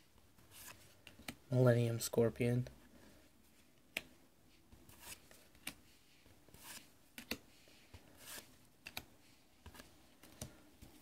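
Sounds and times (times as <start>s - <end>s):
cards sliding on cards: 0.4s - 1.4s, 3.6s - 11.0s.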